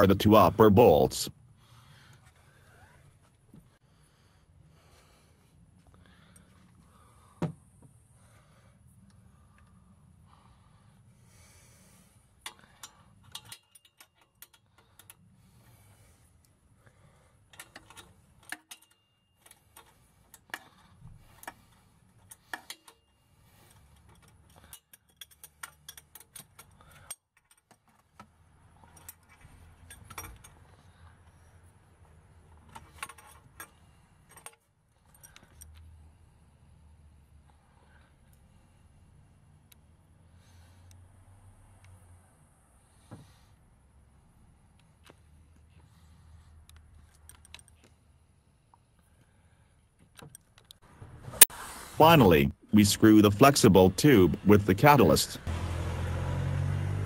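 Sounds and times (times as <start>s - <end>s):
hand tools clicking on metal: 17.5s - 20.8s.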